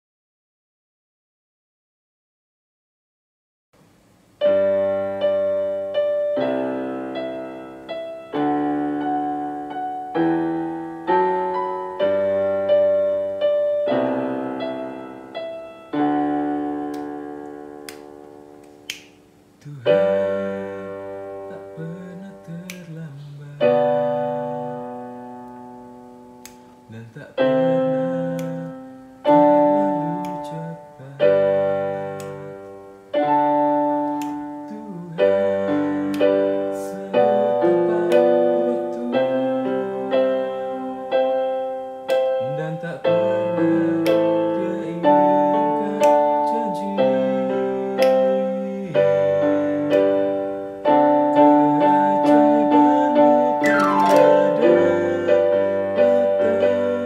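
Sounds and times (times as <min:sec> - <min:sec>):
keyboard piano chords: 0:04.0 - 0:57.0
keyboard bass notes: 0:49.0 - 0:57.0.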